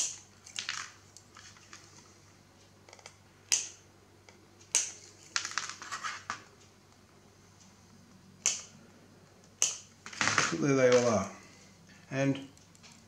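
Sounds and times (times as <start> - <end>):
small crackling clicks: 12.4 - 13.0.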